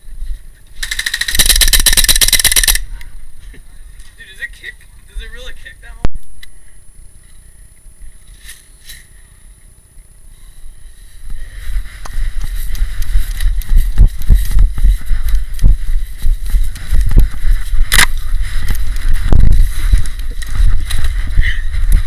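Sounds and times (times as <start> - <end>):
wind rumble on microphone: 11.2 - 22.0.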